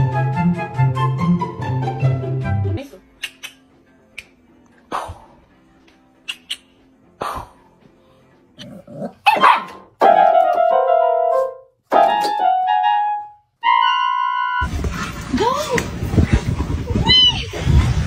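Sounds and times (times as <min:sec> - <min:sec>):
dog barking: 0:09.2 - 0:09.9.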